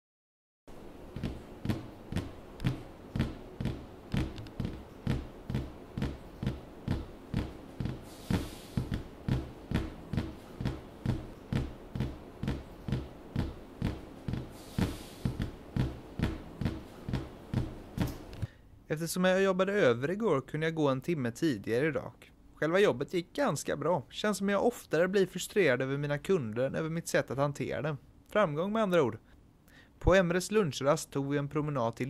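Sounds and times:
soft hissing: 6.7s - 11.2s, 14.1s - 15.6s.

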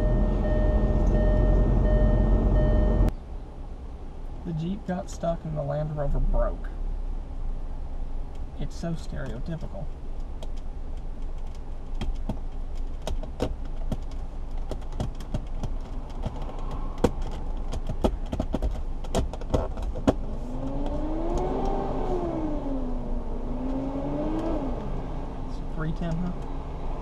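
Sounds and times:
low rumble of road traffic: 0.0s - 27.0s
passing vehicle engine: 20.2s - 27.0s.

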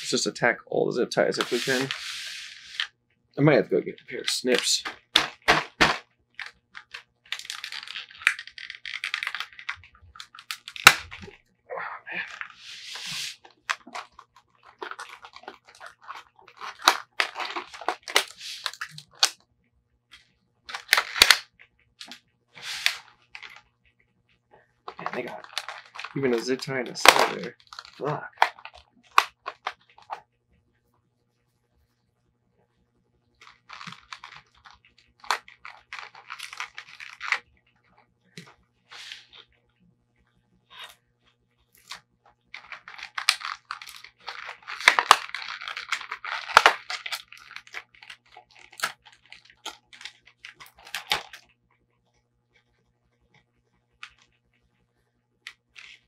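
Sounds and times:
packing tape ripping: 1.4s - 2.9s, 14.7s - 19.3s, 22.0s - 23.5s, 42.6s - 51.4s
plastic packaging crackling: 1.4s - 2.9s, 4.0s - 11.4s, 12.2s - 19.3s, 22.0s - 23.6s, 24.8s - 30.2s, 33.4s - 37.4s, 41.8s - 51.5s.

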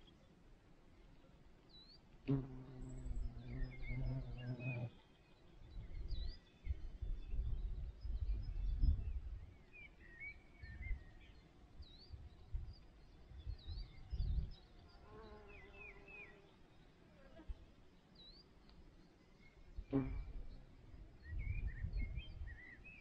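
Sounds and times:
small birds chirping: 0.0s - 23.0s
bee buzzing: 2.3s - 4.9s, 19.9s - 20.6s
wind buffeting microphone: 5.7s - 9.6s, 11.8s - 14.7s, 21.0s - 22.6s.

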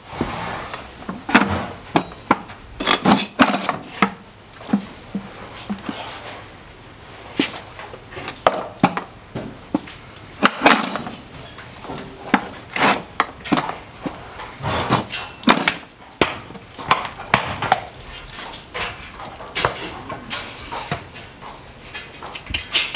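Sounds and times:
scraping strokes on hoof: 0.0s - 9.0s, 9.7s - 16.4s
sharp knocks on hoof: 14.6s - 17.9s.

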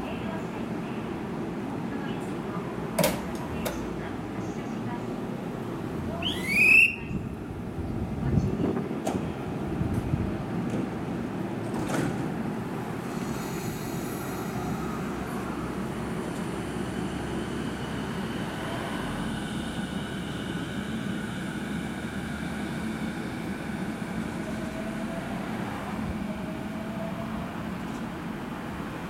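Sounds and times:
train rumble: 0.0s - 29.0s
wind on microphone: 7.0s - 9.0s.

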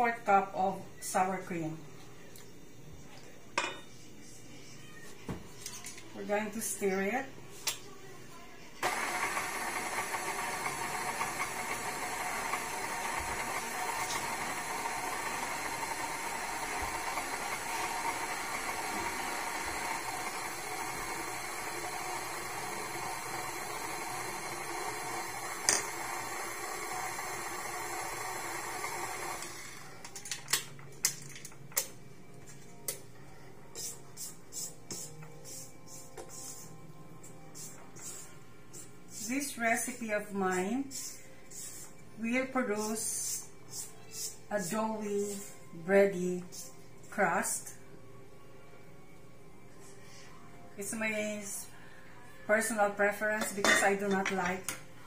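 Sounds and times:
stand mixer running: 8.8s - 30.1s.

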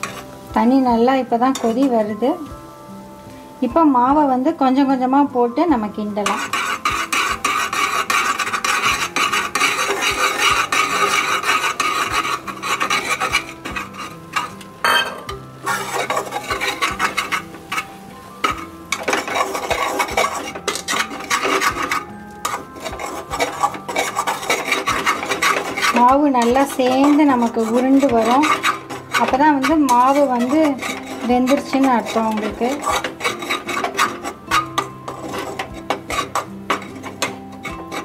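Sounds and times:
metal spatula scraping a pan: 0.0s - 2.4s, 5.8s - 38.0s.

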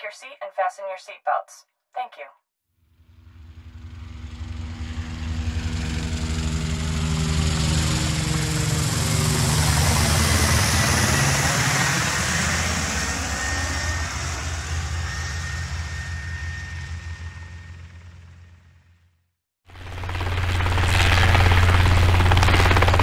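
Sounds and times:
aircraft engine drone: 2.9s - 18.9s, 19.8s - 23.0s.

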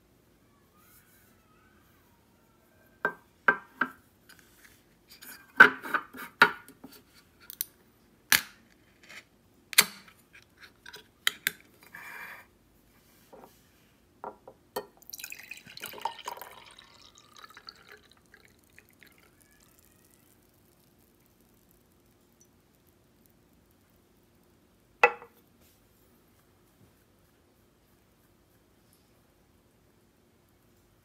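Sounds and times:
liquid pouring into glass: 15.0s - 19.7s
can knocking on table: 25.0s - 25.3s.

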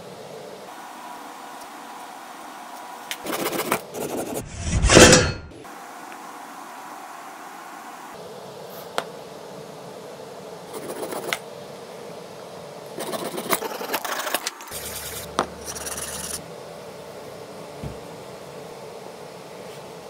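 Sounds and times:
rough rubbing noise: 3.2s - 5.5s, 13.0s - 16.4s.

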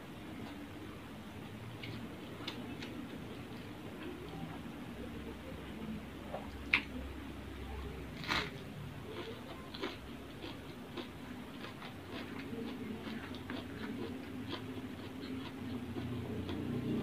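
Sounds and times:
crunch of biting cabbage: 8.2s - 17.0s
mouth chewing with wet clicks: 9.1s - 17.0s.

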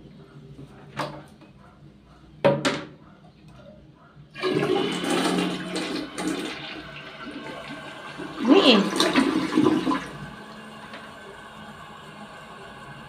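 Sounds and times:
toilet flushing: 4.3s - 13.0s.

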